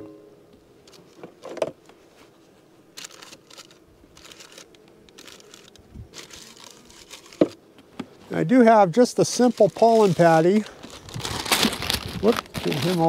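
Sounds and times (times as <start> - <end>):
gloved hands rustling material: 1.9 - 7.6, 9.1 - 13.0.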